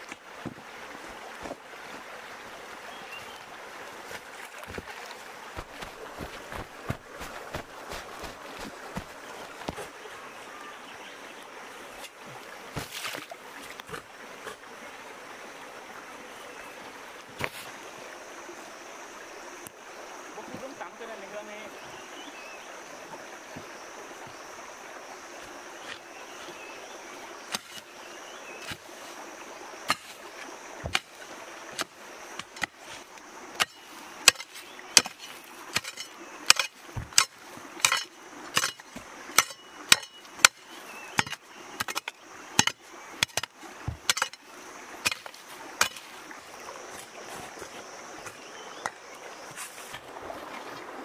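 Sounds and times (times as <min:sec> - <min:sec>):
flowing stream water: 0:00.0 - 0:51.0
hand hoe chopping into earth: 0:04.1 - 0:10.0, 0:12.0 - 0:14.6, 0:27.5 - 0:27.9, 0:28.6 - 0:29.0, 0:29.8 - 0:44.4, 0:45.0 - 0:46.2.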